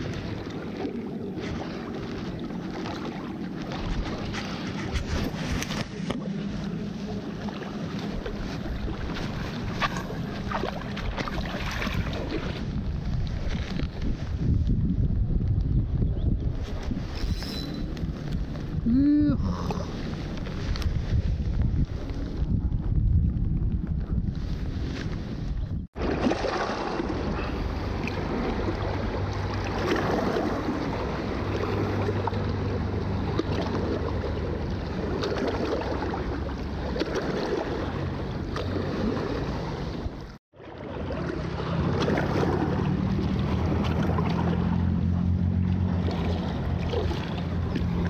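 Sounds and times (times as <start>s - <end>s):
water lapping on rocky shore: 0.0s - 14.8s, 25.9s - 48.0s
low engine hum: 0.0s - 16.5s, 17.8s - 48.0s
wind on microphone: 0.0s - 26.0s.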